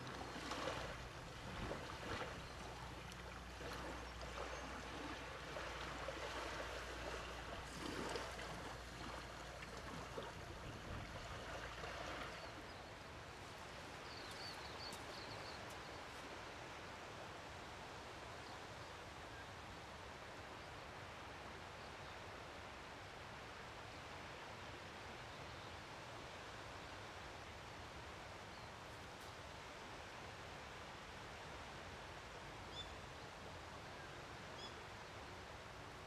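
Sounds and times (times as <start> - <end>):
gentle waves lapping: 0.0 - 18.3.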